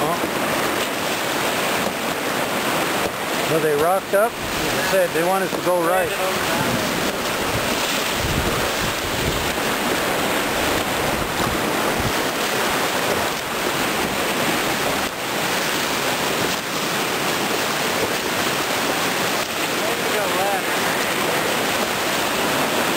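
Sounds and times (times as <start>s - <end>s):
whitewater rapids rushing: 0.0s - 22.9s
wind buffeting microphone: 5.9s - 20.0s.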